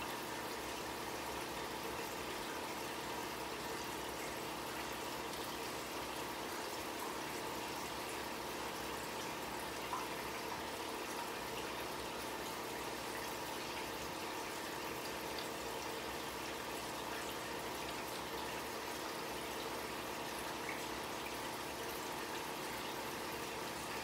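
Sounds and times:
faint steady hum: 0:00.0 - 0:24.0
water trickling in fish tank: 0:00.0 - 0:24.0.

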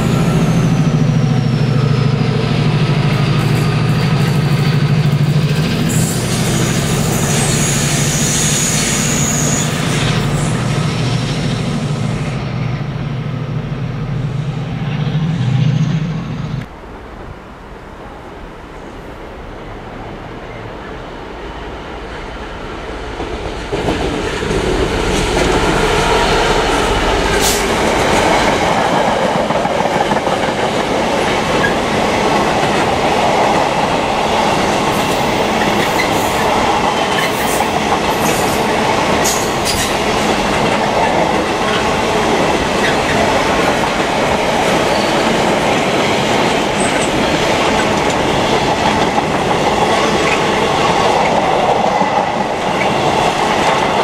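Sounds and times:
diesel locomotive passing: 0:00.0 - 0:54.0
wheel squeals: 0:05.9 - 0:10.5.

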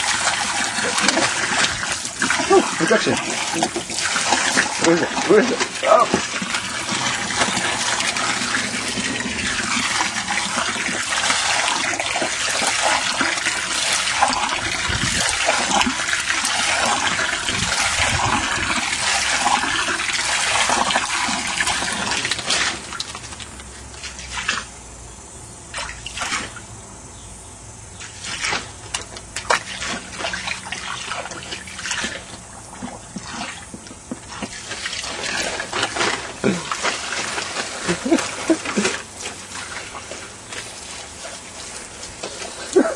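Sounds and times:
hose spraying onto tarp: 0:00.0 - 0:23.4, 0:34.3 - 0:42.9
water splashes and drips: 0:00.0 - 0:24.8, 0:25.7 - 0:26.7, 0:28.0 - 0:42.9.

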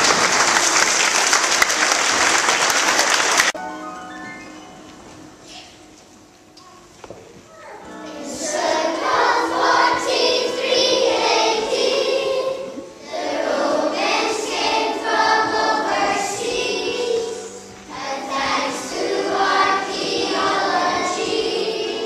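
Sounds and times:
children singing together: 0:07.9 - 0:22.0.

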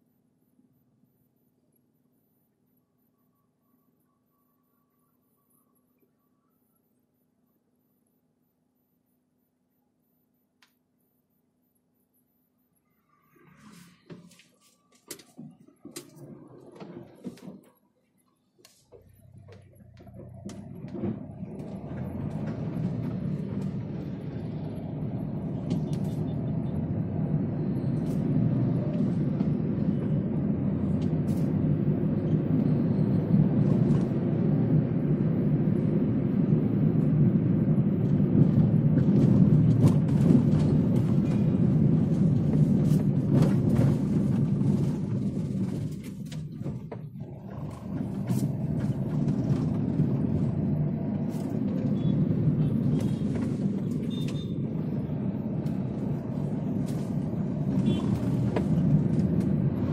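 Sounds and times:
car tyre and engine rumble: 0:12.2 - 0:59.9.

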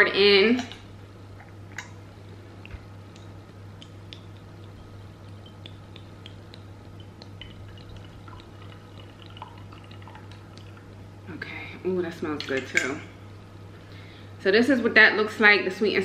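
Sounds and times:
steady low hum: 0:00.0 - 0:16.0
sauce dripping into glass bowl: 0:03.2 - 0:10.9.

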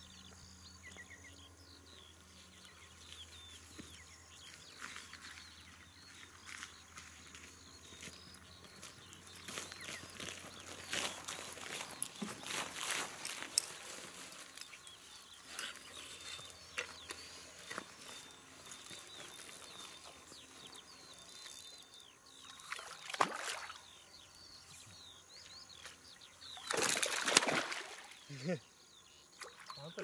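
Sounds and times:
small birds chirping: 0:00.0 - 0:30.0
fish splashing in water: 0:22.6 - 0:23.8, 0:26.6 - 0:28.2.

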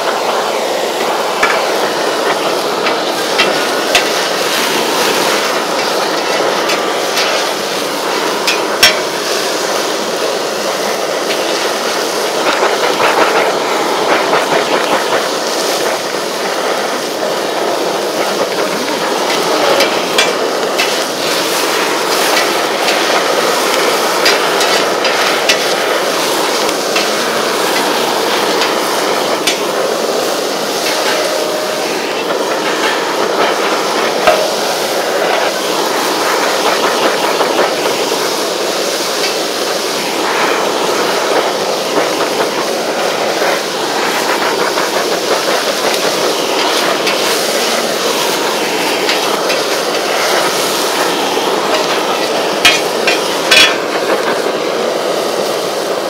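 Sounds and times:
food sizzling on griddle: 0:00.0 - 0:56.0
spatula clanking on griddle: 0:02.4 - 0:07.6, 0:08.3 - 0:09.2, 0:18.2 - 0:25.9, 0:26.6 - 0:29.8, 0:30.7 - 0:35.6, 0:45.5 - 0:54.3.

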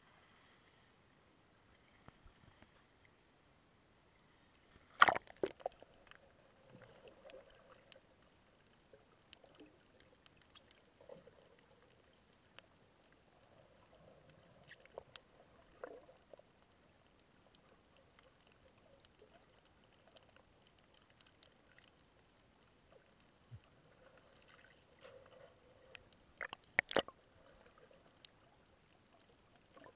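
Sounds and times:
faint underwater clicks and crackles: 0:00.0 - 0:29.9.

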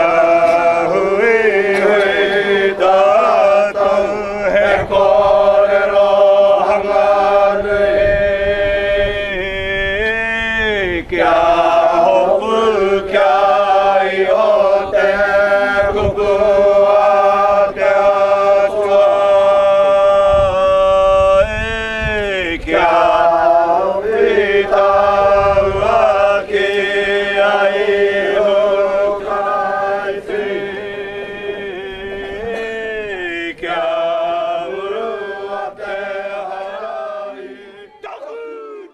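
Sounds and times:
group chanting: 0:00.0 - 0:10.0, 0:10.7 - 0:38.9.

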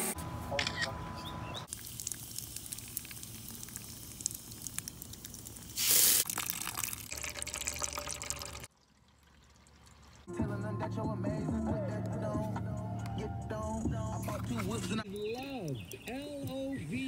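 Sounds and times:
water spraying from valve: 0:01.7 - 0:06.6
water dripping onto soil: 0:01.7 - 0:10.3, 0:15.0 - 0:16.7.

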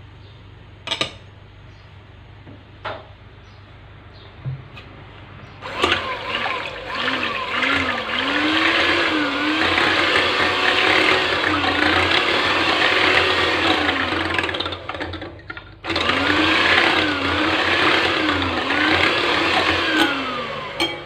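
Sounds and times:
electric hand mixer whining: 0:05.6 - 0:21.0.

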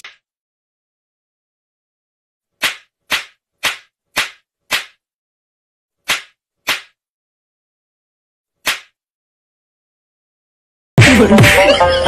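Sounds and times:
sharp slap-like cracks: 0:02.6 - 0:05.0, 0:06.0 - 0:07.0, 0:08.6 - 0:09.0.

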